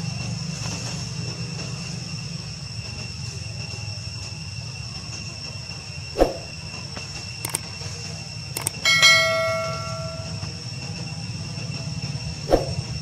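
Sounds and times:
constant high whine: 0.0s - 13.0s
faint clicks: 7.4s - 7.7s, 8.6s - 8.8s
metallic clang ringing: 8.6s - 10.5s.

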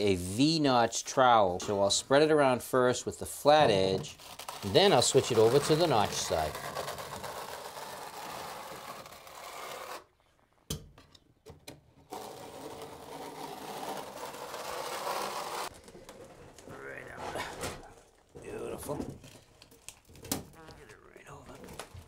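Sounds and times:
trowel scraping mortar: 3.6s - 10.1s, 12.1s - 15.7s.

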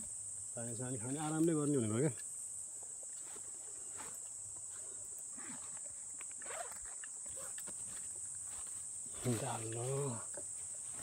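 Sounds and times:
insect chorus: 0.0s - 11.0s
footsteps through grass: 3.1s - 11.0s.

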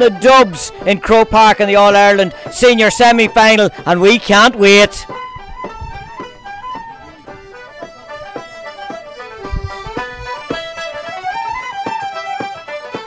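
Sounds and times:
button accordion melody: 0.0s - 13.0s
fiddle: 0.0s - 13.0s
frame drum beat: 0.0s - 13.0s
tenor banjo: 0.0s - 13.0s.

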